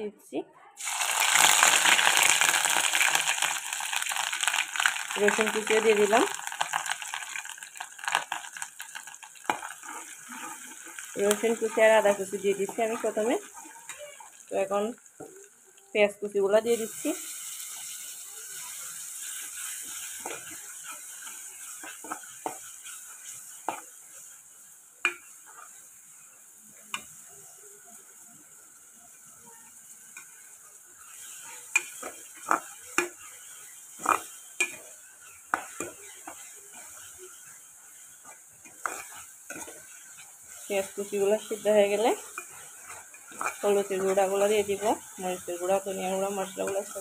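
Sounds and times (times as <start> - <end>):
food sizzling in hot oil: 0.8 - 47.0
steel spoon scraping a pot: 9.5 - 14.0, 31.0 - 44.8.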